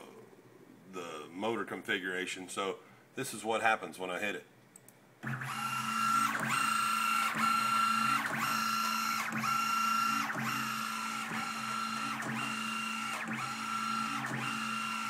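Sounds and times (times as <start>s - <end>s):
milling table motor whine: 5.2s - 15.0s.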